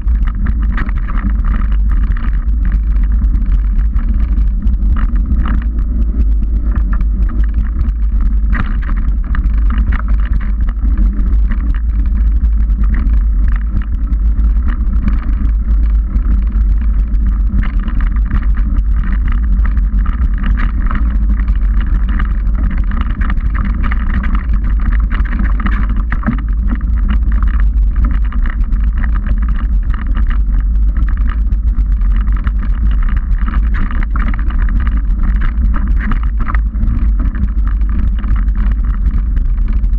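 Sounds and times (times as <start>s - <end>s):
bike tyres rolling on dirt: 0.0s - 39.9s
wind buffeting camera: 0.0s - 39.9s
bike clicks and rattles: 4.3s - 5.9s, 17.4s - 39.9s.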